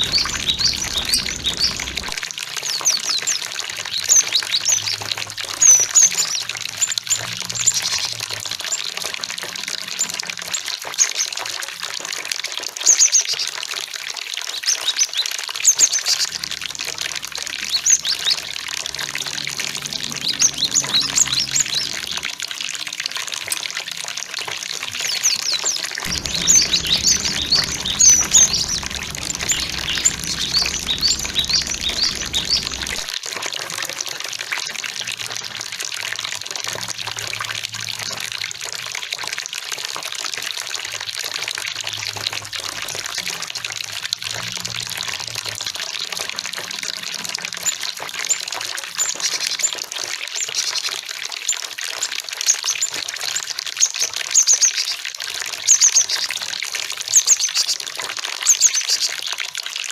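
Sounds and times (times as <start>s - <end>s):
birds high chirps: 0.0s - 2.2s, 26.1s - 33.1s
flowing water rushing: 0.0s - 2.2s, 16.1s - 22.6s, 26.0s - 33.1s
low hum: 0.0s - 2.2s, 16.5s - 22.3s, 26.0s - 33.1s.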